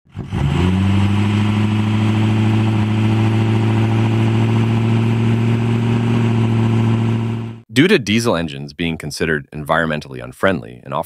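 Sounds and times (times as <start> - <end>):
diesel pickup engine revving: 0.1 - 7.6.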